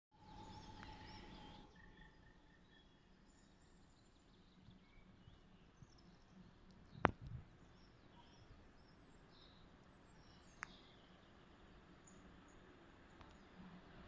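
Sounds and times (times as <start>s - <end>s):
small birds chirping and whistling: 0.3s - 6.4s.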